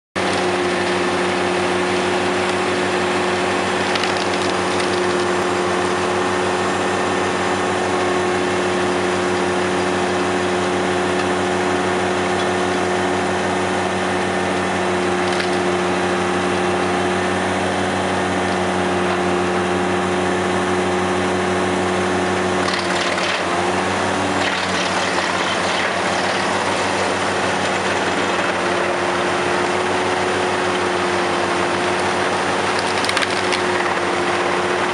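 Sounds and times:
wood chipper humming: 0.2s - 34.9s
branches cracking and splintering: 3.8s - 5.4s, 15.2s - 15.6s, 32.6s - 33.9s.

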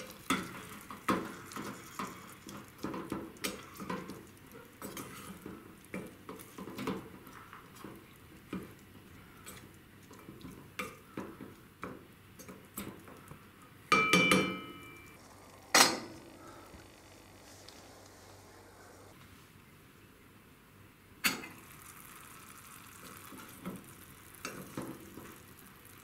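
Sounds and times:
wooden spoon scraping a pot: 0.0s - 11.5s
ringing metal clank: 14.0s - 15.2s.

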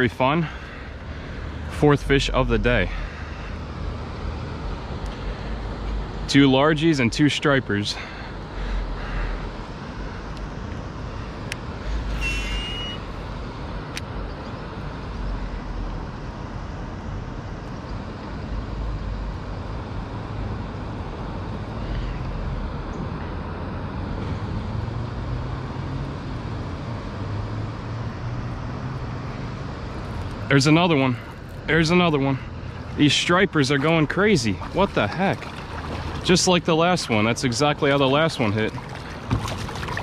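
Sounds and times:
low outdoor rumble: 0.0s - 40.0s
short high tone: 12.1s - 13.2s.

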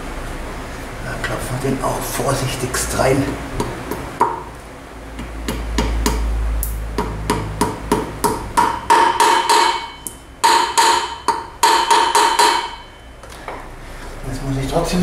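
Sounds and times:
hammer tapping metal: 5.2s - 13.1s.

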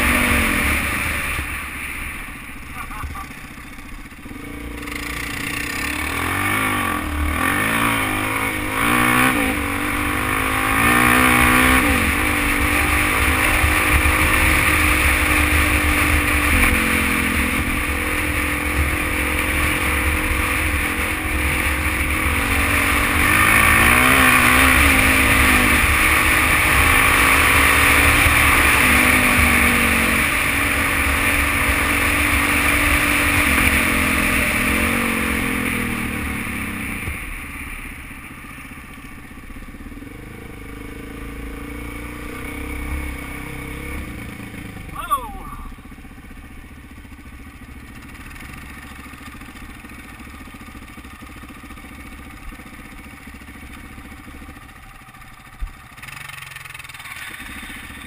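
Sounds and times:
dirt bike engine accelerating: 0.0s - 36.6s, 40.0s - 45.8s.

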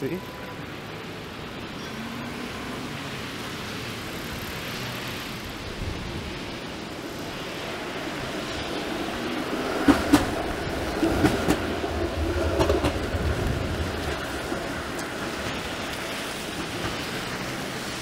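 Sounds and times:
streetcar rumbling on rails: 0.0s - 18.0s
tyres on wet road: 0.0s - 18.0s
rain hissing: 1.9s - 18.0s
streetcar clunks: 9.7s - 17.4s.

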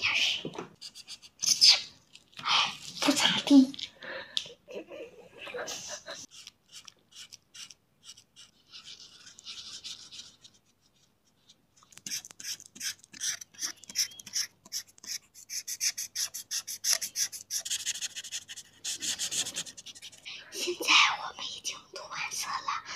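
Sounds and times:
felt-tip markers scrubbing on paper: 6.0s - 20.3s.

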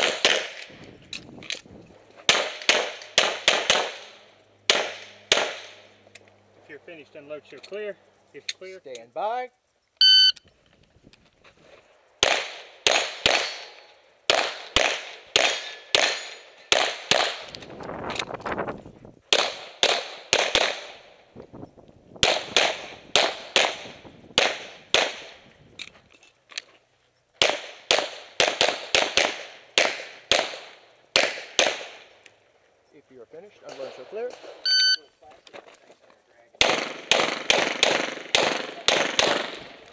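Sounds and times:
pistol shots: 0.0s - 0.7s, 2.3s - 5.9s, 12.2s - 17.5s, 19.3s - 21.1s, 22.2s - 25.4s, 27.4s - 32.1s, 36.6s - 39.8s
shot timer beep: 10.0s - 10.4s, 34.6s - 35.1s.

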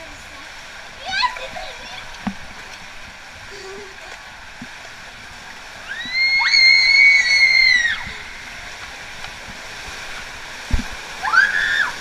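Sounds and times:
water rushing along slide tube: 0.0s - 12.0s
girls screaming: 5.8s - 8.2s, 11.2s - 12.0s.

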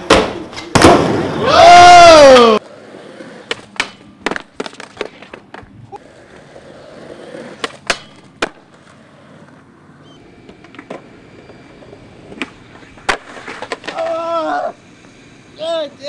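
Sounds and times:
skateboard wheels rolling on concrete: 0.0s - 16.0s
skateboard clacking on ground: 3.4s - 9.0s, 10.4s - 14.4s.

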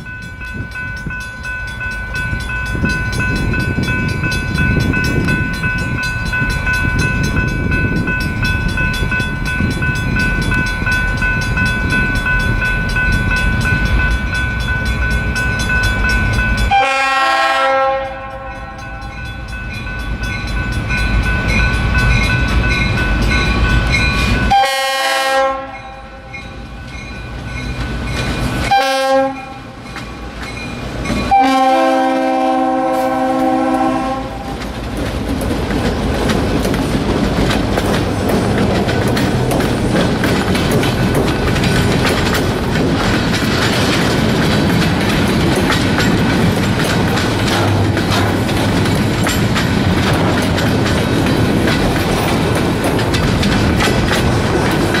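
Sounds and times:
diesel locomotive engine rumble: 0.0s - 55.0s
locomotive horn blasts: 16.7s - 18.9s, 24.5s - 26.3s, 28.7s - 29.7s, 31.2s - 34.5s.

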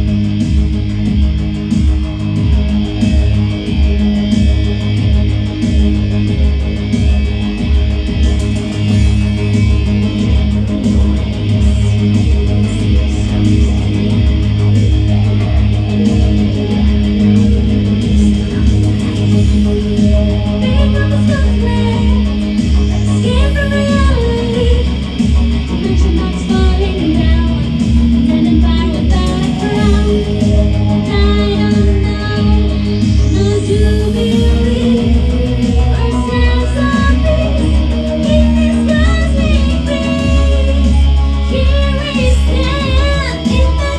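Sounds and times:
electric guitar playing: 0.0s - 43.9s
pulsing low beat: 0.0s - 43.9s
synth chords: 0.0s - 43.9s
person singing: 19.4s - 43.9s.

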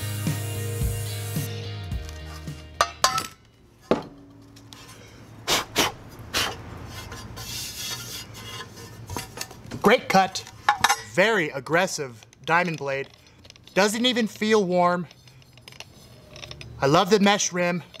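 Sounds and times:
background music: 0.0s - 3.2s
grinder set down on workbench: 2.8s - 4.3s.

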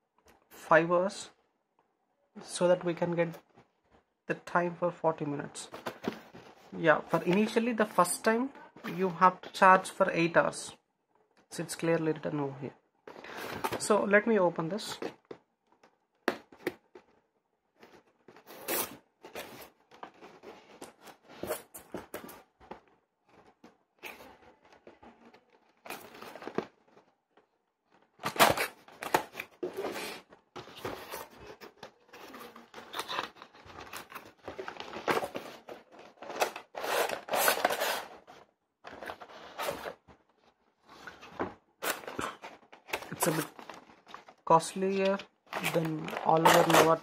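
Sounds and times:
packaging rustling and tearing: 15.2s - 47.0s.

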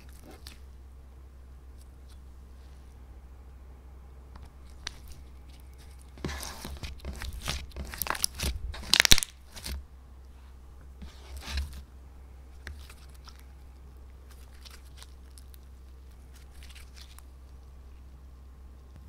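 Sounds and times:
low steady hum: 0.0s - 19.0s
slime crackling and squelching: 4.5s - 9.8s, 12.5s - 18.2s.

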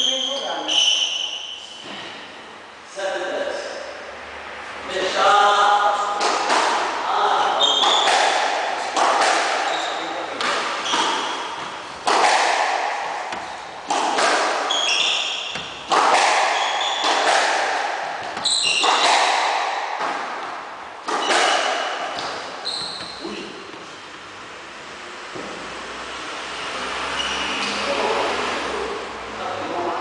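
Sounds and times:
sneakers squeaking on wooden floor: 0.0s - 2.1s, 7.2s - 20.4s, 21.0s - 24.2s, 27.1s - 27.9s
squash ball hitting rackets and walls: 6.0s - 24.4s.

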